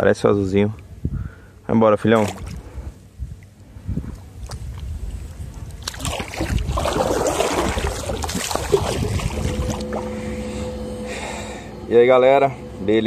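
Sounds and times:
wind rumble on microphone: 0.9s - 1.4s, 2.4s - 10.4s
water splashing against kayak: 4.4s - 10.2s.

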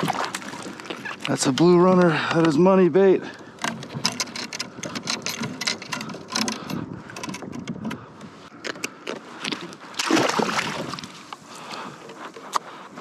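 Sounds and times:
fishing reel clicking and rattling: 3.6s - 8.0s.

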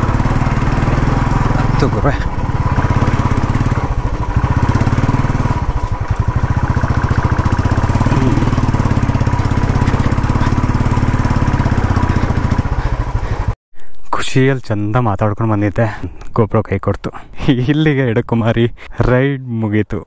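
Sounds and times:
motorcycle engine running: 0.0s - 13.6s.

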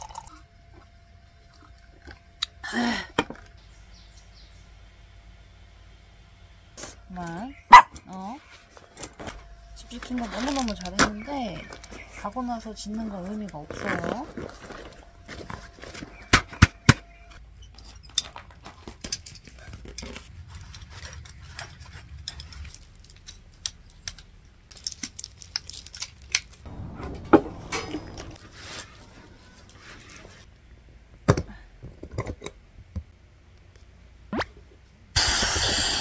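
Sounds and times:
small hard objects clinking: 9.8s - 16.3s
louder knocks: 26.7s - 29.1s.

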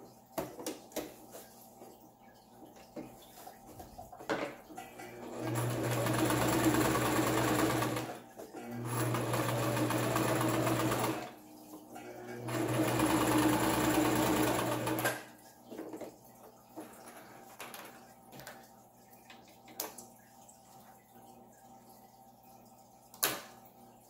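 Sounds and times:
sewing machine stitching: 5.1s - 11.4s, 12.3s - 15.2s.

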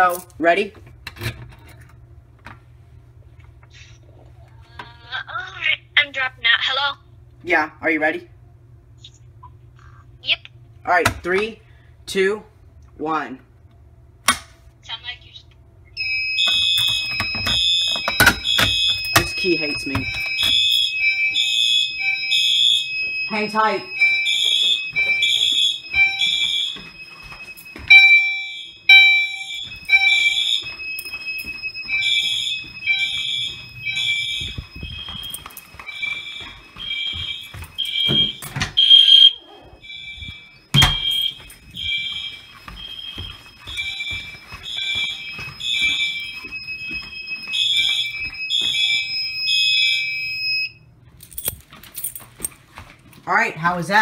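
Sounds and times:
fire alarm pulsed horn tones: 16.0s - 51.0s
steady high alarm tone: 16.0s - 51.0s.

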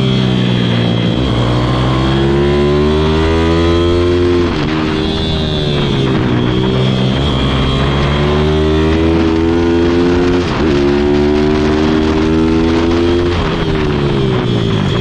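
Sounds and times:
small motorbike engine revving: 0.0s - 15.0s.

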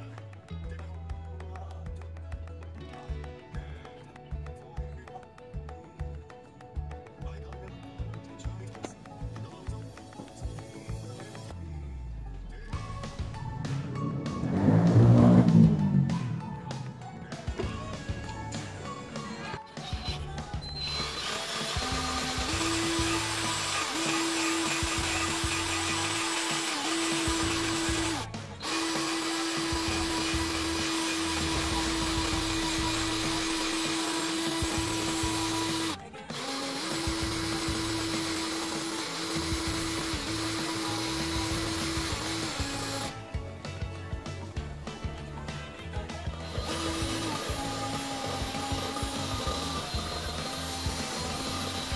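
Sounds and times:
rotary power tool grinding metal: 13.0s - 43.2s, 46.3s - 51.9s.

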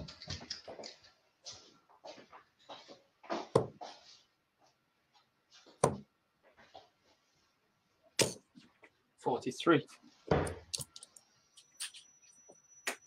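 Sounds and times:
darts striking dartboard: 5.8s - 6.0s.

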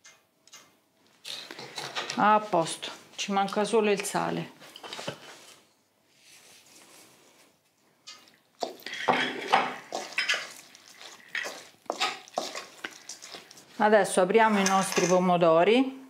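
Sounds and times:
spoon scraping metal bowl: 8.7s - 13.6s, 14.4s - 15.2s.

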